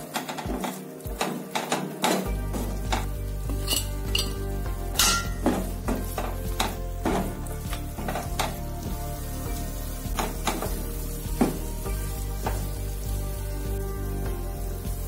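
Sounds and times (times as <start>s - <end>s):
wooden spatula scraping a pan: 0.0s - 4.4s, 5.2s - 8.7s
ghee sizzling: 0.0s - 15.0s.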